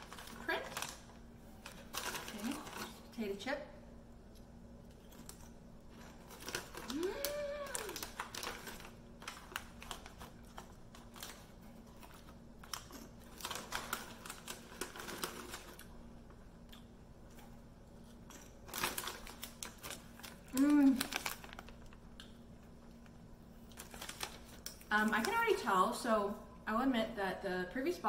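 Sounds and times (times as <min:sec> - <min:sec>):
foil bag crinkling: 0:00.0 - 0:03.1, 0:05.1 - 0:16.0, 0:18.2 - 0:22.2, 0:22.8 - 0:25.7
potato chips crunching: 0:05.0 - 0:16.0, 0:18.1 - 0:23.1.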